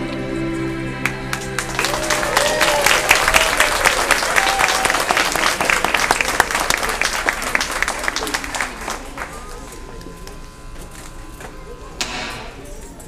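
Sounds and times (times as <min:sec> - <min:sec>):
held music chord: 0:00.0 - 0:02.4
audience applauding: 0:01.0 - 0:10.2
people cheering: 0:01.0 - 0:10.6.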